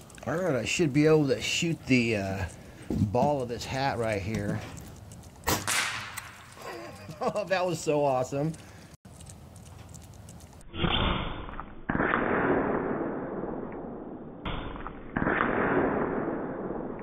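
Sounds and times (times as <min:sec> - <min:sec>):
pellet striking target: 0:05.4 - 0:06.4
slowed air rifle shot: 0:05.5 - 0:06.4, 0:10.7 - 0:17.0.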